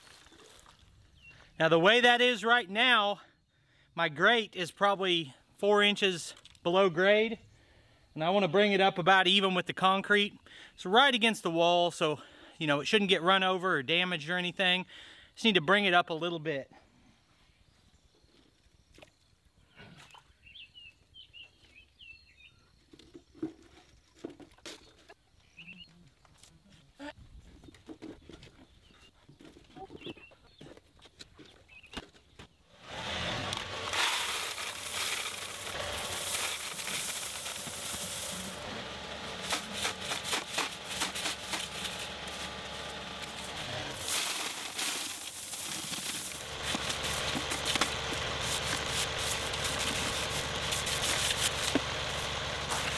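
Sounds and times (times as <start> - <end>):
gravel rattling and scraping: 0.0 - 1.2, 27.4 - 52.9
birds chirping: 24.8 - 26.2, 27.6 - 30.8
tractor diesel engine running: 32.8 - 52.9.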